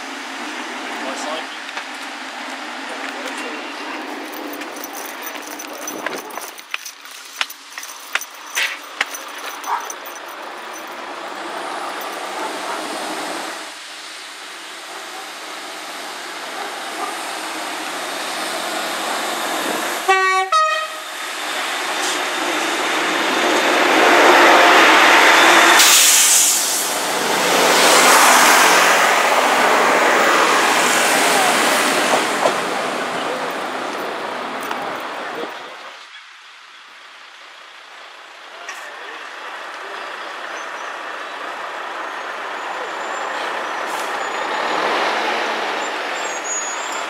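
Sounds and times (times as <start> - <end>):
train engine and wheel noise: 0.0 - 47.0
train horn blast: 20.0 - 21.1.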